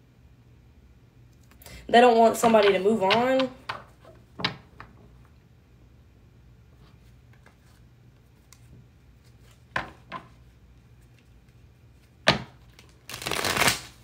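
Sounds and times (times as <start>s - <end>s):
cards being shuffled: 2.4s - 4.5s, 11.0s - 14.0s.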